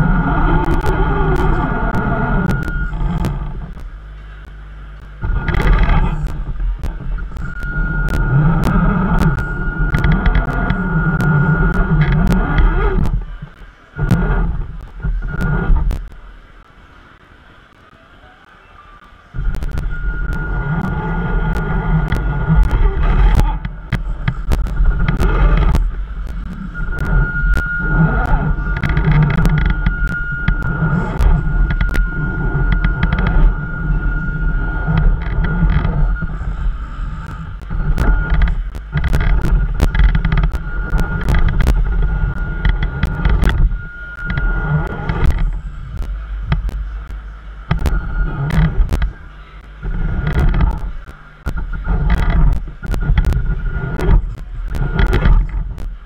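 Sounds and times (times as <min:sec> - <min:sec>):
drivetrain clicks and knocks: 0:00.0 - 0:16.6, 0:19.4 - 0:56.0
electric motor whining: 0:00.0 - 0:16.7, 0:19.4 - 0:56.0
low rumble: 0:00.0 - 0:17.8, 0:19.3 - 0:56.0
wind buffeting microphone: 0:19.4 - 0:47.0.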